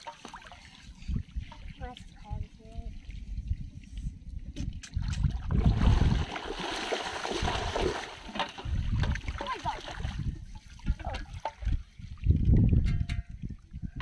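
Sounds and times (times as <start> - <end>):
wading through shallow water: 5.2 - 12.4.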